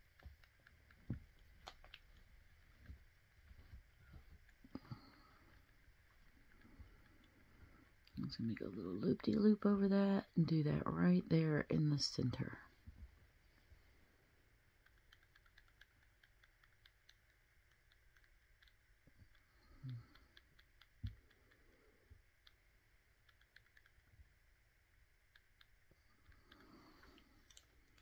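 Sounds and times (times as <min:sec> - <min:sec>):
faint small clicks: 0:00.1 - 0:03.0, 0:14.8 - 0:22.6, 0:23.2 - 0:24.2, 0:25.3 - 0:28.0.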